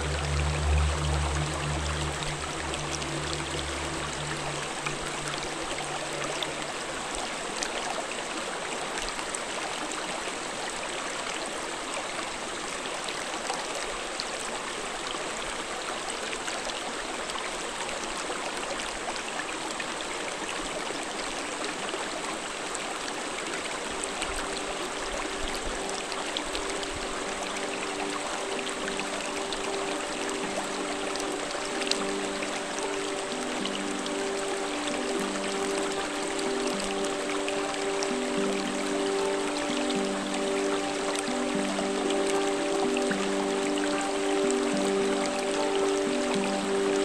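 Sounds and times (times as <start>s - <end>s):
background music: 0.0s - 7.6s, 23.8s - 47.0s
stream flowing over rocks: 0.0s - 47.0s.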